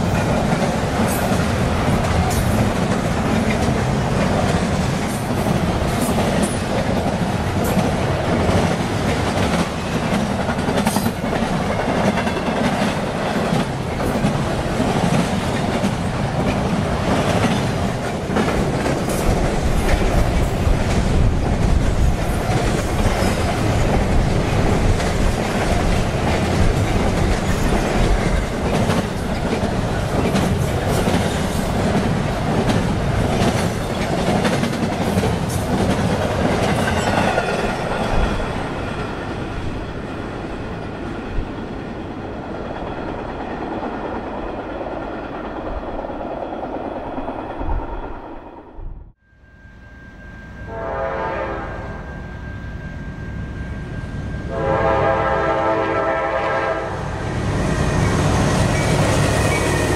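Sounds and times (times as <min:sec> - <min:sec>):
train wheels clicking over rail joints: 0:00.0 - 0:39.8
freight train rumble: 0:00.0 - 0:59.9.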